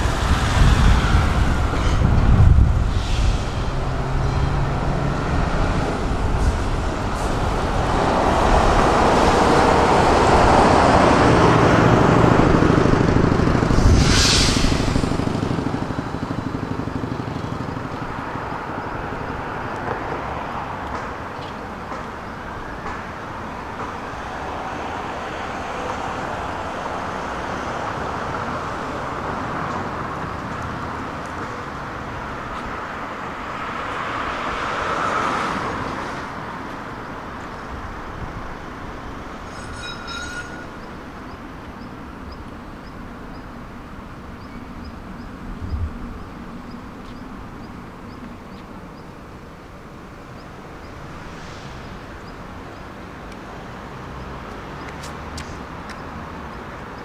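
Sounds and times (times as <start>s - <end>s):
vehicle passing close by: 0.0s - 20.7s
traffic rumble: 0.0s - 57.0s
short loud hiss: 13.8s - 15.0s.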